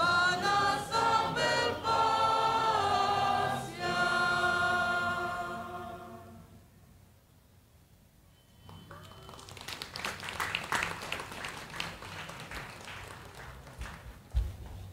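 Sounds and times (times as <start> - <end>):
audience applauding: 8.8 - 14.3.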